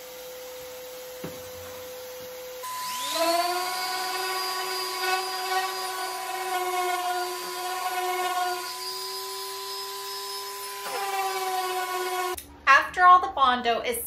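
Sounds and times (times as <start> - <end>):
orbital sander whining: 2.6 - 12.4.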